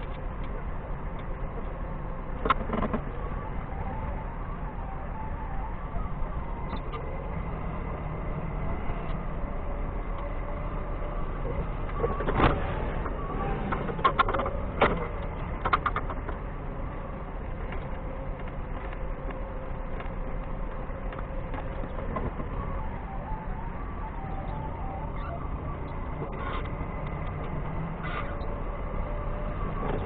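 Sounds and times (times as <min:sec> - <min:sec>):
clicks and clanks: 0:02.4 - 0:03.1, 0:13.7 - 0:16.4.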